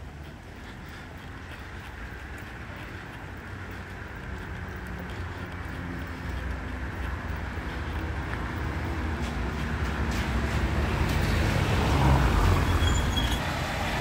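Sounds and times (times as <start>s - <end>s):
low traffic rumble: 0.0s - 14.0s
vehicle approaching on wet street: 0.0s - 14.0s.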